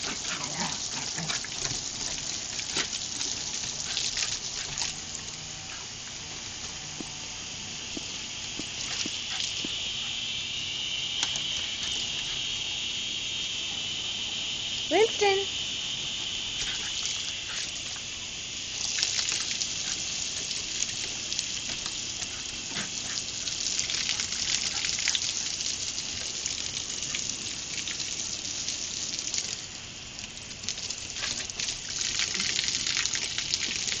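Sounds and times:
water splashing and pattering: 0.0s - 5.8s, 16.6s - 34.0s
garden hose spraying water: 0.0s - 34.0s.

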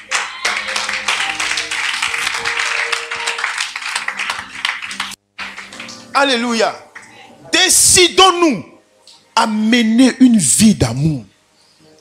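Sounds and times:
background music with held notes: 0.0s - 7.0s
congregation clapping: 0.0s - 7.2s.

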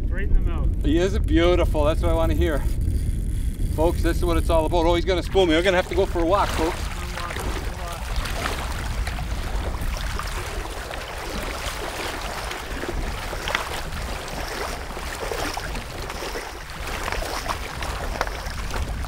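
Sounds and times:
wind rumble on microphone: 0.0s - 19.0s
wading through shallow water: 4.8s - 19.0s.

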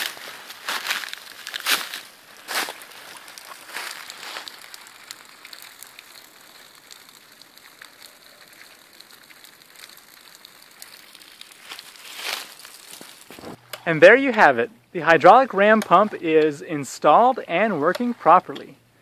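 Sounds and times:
footsteps crunching dry leaves: 0.0s - 5.8s, 10.8s - 13.6s
running water patter: 0.0s - 18.8s.

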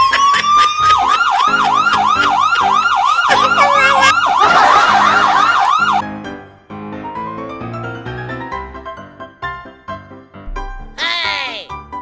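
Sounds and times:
electronic siren yelping: 0.0s - 6.0s
piano music: 0.0s - 11.0s.

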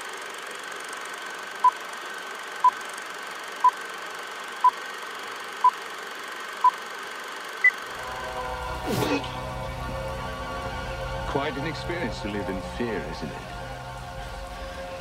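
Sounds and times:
film projector whir and hiss: 0.0s - 8.4s.

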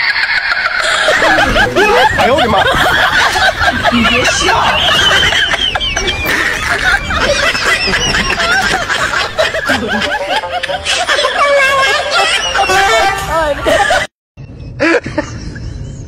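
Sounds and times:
crowd laughing: 0.0s - 14.1s.

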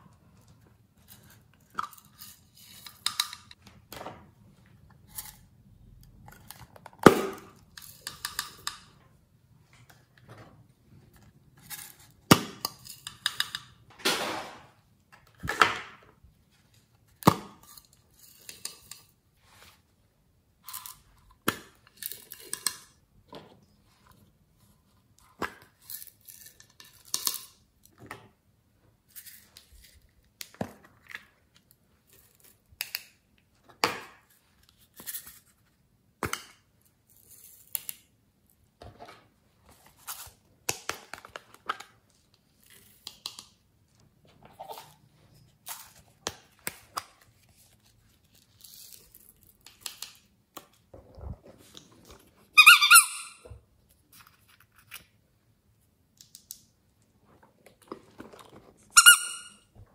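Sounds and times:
high plastic squeak: 52.5s - 53.5s, 58.8s - 59.7s.

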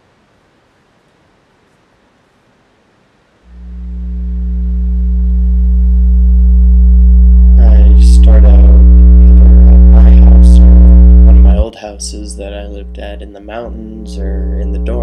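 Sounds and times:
deep electronic drone: 3.5s - 15.0s
wavering voice-like sounds: 7.4s - 15.0s.

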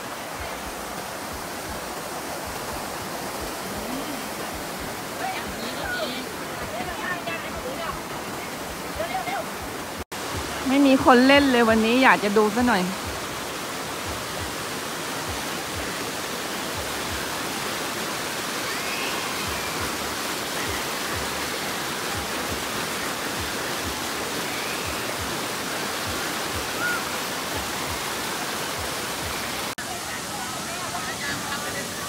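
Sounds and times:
water rushing down rock channel: 0.0s - 32.0s.

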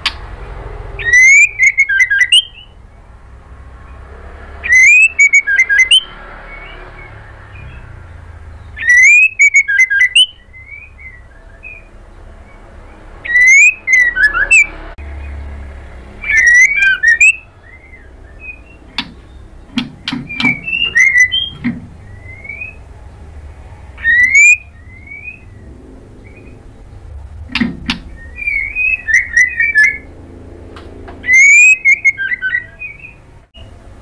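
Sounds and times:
bird singing whistled phrases: 1.0s - 2.8s, 4.6s - 8.0s, 8.6s - 12.0s, 13.2s - 14.8s, 16.2s - 19.5s, 20.2s - 22.8s, 24.0s - 26.6s, 27.9s - 30.1s, 31.2s - 33.3s.

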